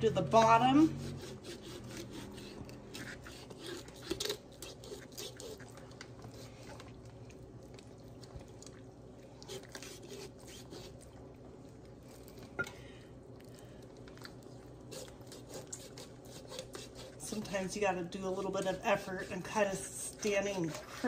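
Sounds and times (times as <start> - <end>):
knife cutting through chicken: 0.9 - 5.7, 14.9 - 17.2.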